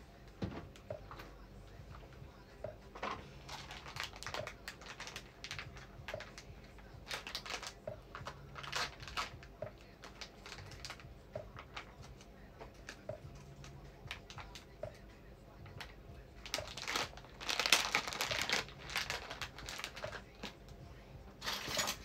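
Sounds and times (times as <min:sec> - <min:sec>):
plastic bag crinkling: 0:03.4 - 0:06.5, 0:07.1 - 0:11.0, 0:15.8 - 0:20.6.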